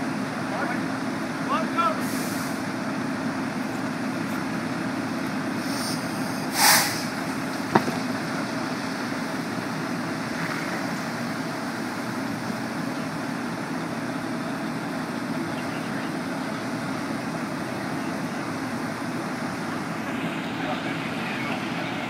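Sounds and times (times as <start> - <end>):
truck engine running: 0.0 - 22.0
short hiss: 5.6 - 7.2.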